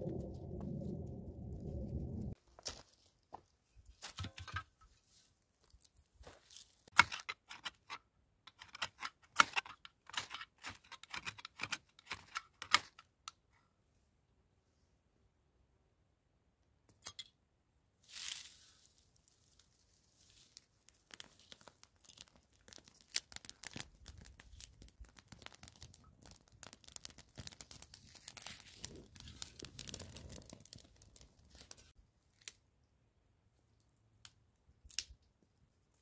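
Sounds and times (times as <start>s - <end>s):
dry grass crackling as it burns: 18.1s - 32.6s.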